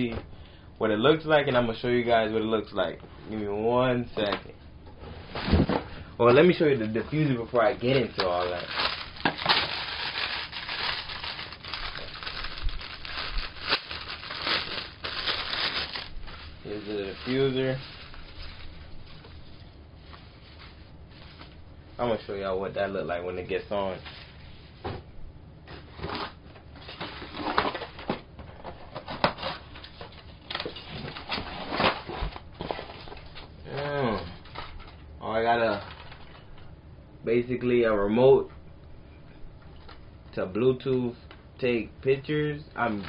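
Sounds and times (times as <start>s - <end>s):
plastic wrapping crinkling: 6.5s - 21.6s, 29.3s - 36.5s
packaging rustling: 6.8s - 21.6s, 34.3s - 36.4s.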